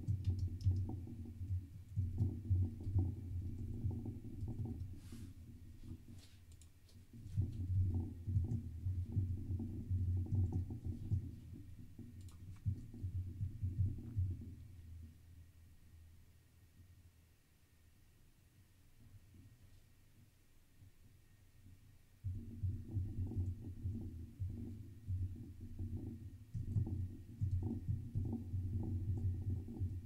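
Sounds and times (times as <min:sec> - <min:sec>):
computer keyboard typing: 0:00.0 - 0:00.9, 0:12.2 - 0:12.8.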